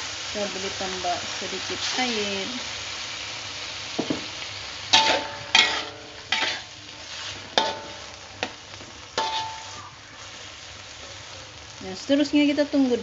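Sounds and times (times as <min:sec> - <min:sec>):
sizzling: 0:00.0 - 0:13.0
metal spatula scraping a wok: 0:04.9 - 0:10.4.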